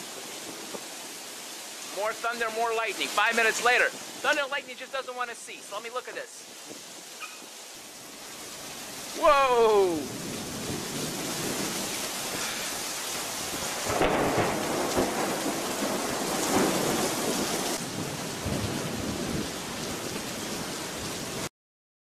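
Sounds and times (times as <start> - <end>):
heavy rain: 0.0 - 21.5
thunder rumbling: 9.7 - 20.7.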